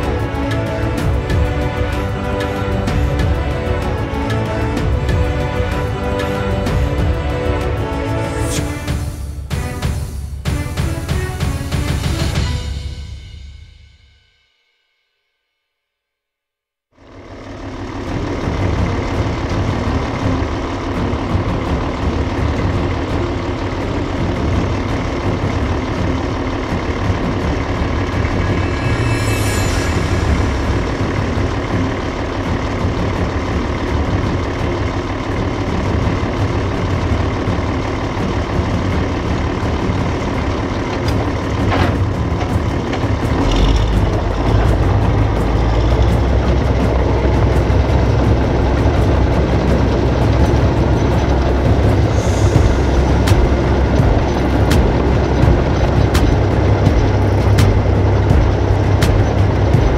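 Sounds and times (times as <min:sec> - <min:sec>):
bulldozer diesel engine running: 0:00.0 - 0:13.0, 0:17.0 - 0:59.9
high falling whine: 0:25.0 - 0:35.1, 0:43.7 - 0:59.9.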